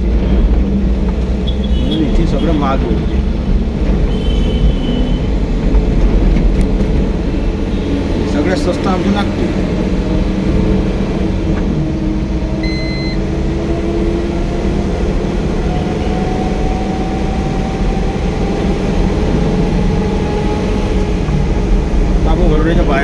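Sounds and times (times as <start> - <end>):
car engine and tyre rumble: 0.0 - 23.0
short electronic beep: 12.6 - 13.2.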